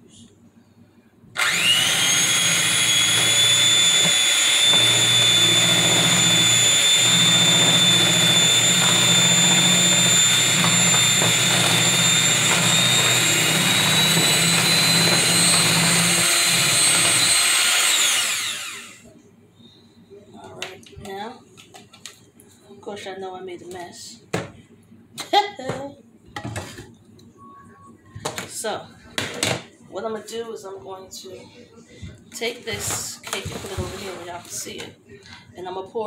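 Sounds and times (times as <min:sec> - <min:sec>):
electric hand mixer whining: 0:01.4 - 0:19.1.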